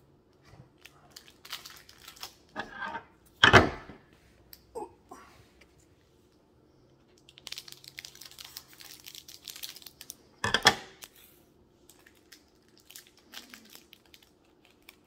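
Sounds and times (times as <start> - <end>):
plastic wrapper crinkling and tearing: 0.7 - 2.6, 7.1 - 15.0.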